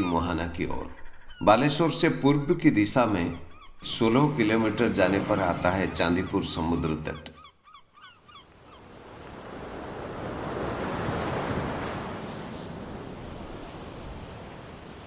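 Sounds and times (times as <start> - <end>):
sea surf breaking on shore: 8.5 - 15.0.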